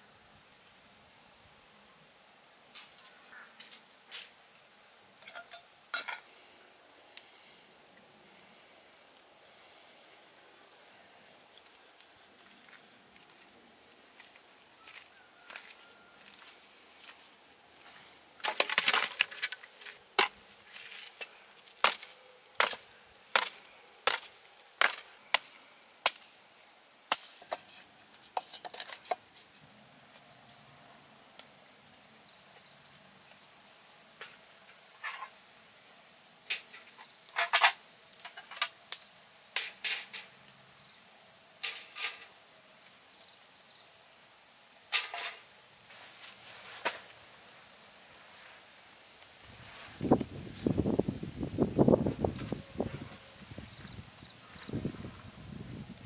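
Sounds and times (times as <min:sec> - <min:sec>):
dry branches snapping: 0:18.4 - 0:26.3.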